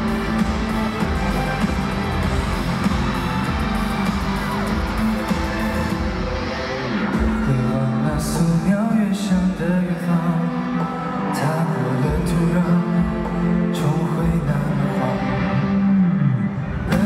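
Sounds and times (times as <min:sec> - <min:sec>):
live band playing pop music: 0:00.0 - 0:17.0
man singing into a microphone: 0:07.2 - 0:17.0.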